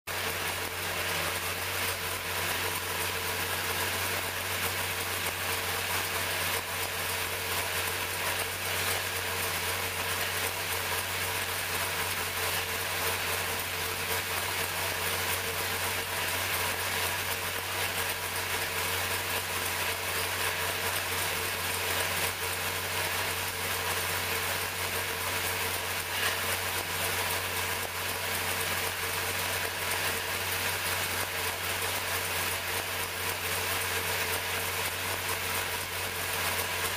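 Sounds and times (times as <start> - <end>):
racing engine idling: 0.1 - 36.9.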